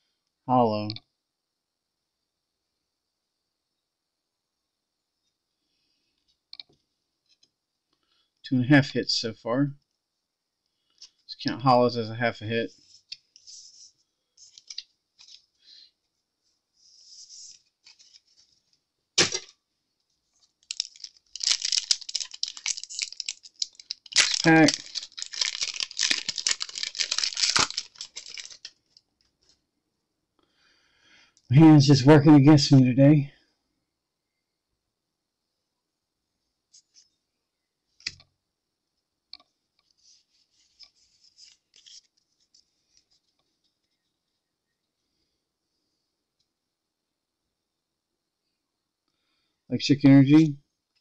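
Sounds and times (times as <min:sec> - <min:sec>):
cards rustling as they slide: 0:12.8 - 0:15.5, 0:20.4 - 0:28.8, 0:39.9 - 0:43.8
foil wrapper crinkling and tearing: 0:20.4 - 0:29.0, 0:40.1 - 0:43.3
trading cards clicking: 0:20.7 - 0:28.7.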